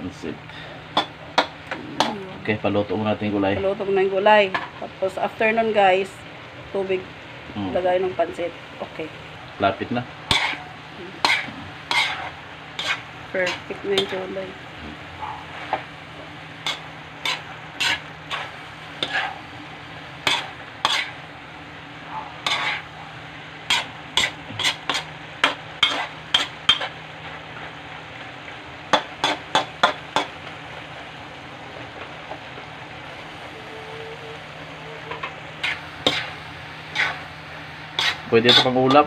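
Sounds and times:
food sizzling: 0.0 - 39.0
spatula scraping a wok: 10.2 - 14.3, 15.4 - 15.9, 16.6 - 19.5, 20.2 - 21.3, 22.4 - 23.0, 23.6 - 27.7, 28.9 - 30.4, 33.6 - 39.0.

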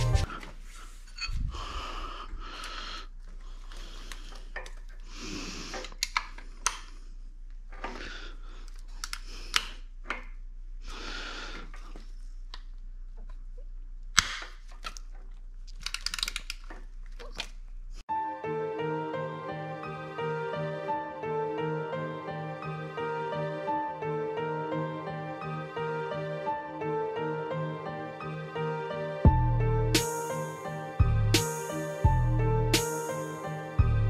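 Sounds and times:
tools and parts clicking and knocking: 5.7 - 7.0, 14.4 - 17.6.

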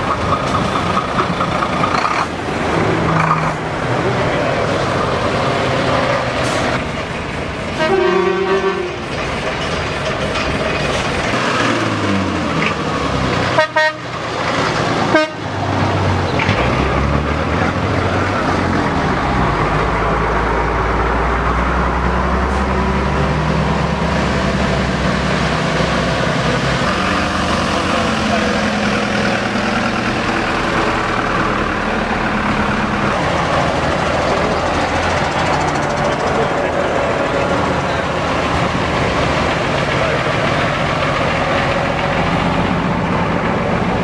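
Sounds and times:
deep engine rumble: 0.0 - 44.0
lorries driving past: 0.0 - 44.0
lorry horn: 7.8 - 9.0, 13.6 - 14.0, 15.1 - 15.4
short sharp horn blasts: 7.8 - 9.0, 13.6 - 14.0, 15.1 - 15.4.

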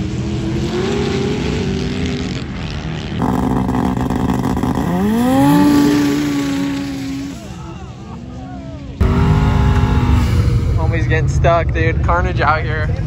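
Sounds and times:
engine at high revs: 0.0 - 7.7, 9.0 - 10.8
engine revving up sharply: 3.2 - 7.7, 9.0 - 11.4.

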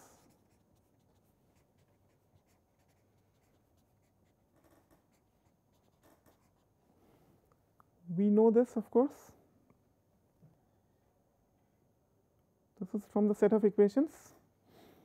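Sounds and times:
marker writing on paper: 0.0 - 6.7.

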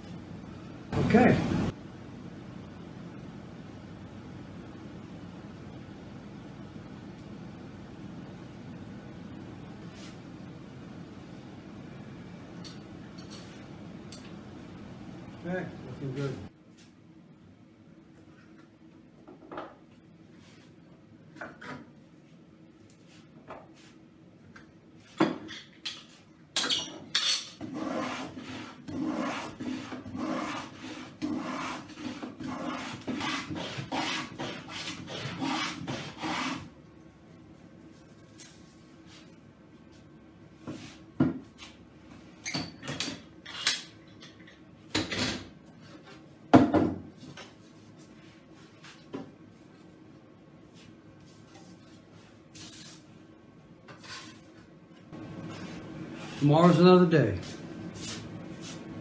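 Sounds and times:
hand rubbing wood: 27.7 - 36.7.

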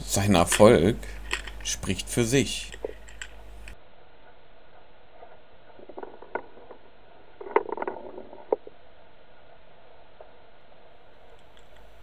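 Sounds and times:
small clicks and knocks: 0.5 - 1.7, 2.6 - 3.8, 5.7 - 8.8, 11.3 - 11.9.

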